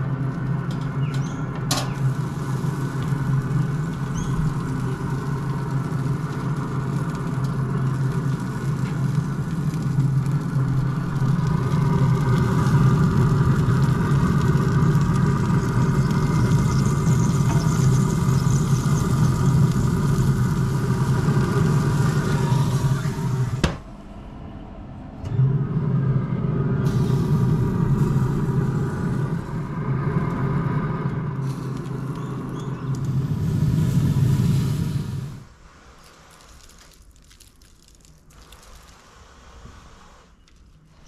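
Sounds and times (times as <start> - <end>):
smoker fan humming: 0.0 - 36.9.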